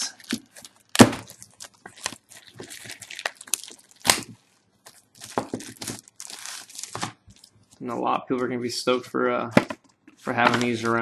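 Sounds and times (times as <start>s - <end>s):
sharp plastic crackles: 0.0s - 7.6s
plastic wrap crinkling and tearing: 0.0s - 7.8s.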